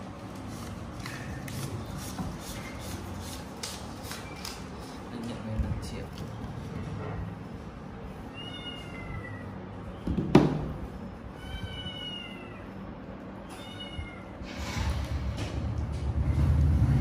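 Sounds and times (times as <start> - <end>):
kitten meowing: 11.4 - 12.6, 13.5 - 14.3.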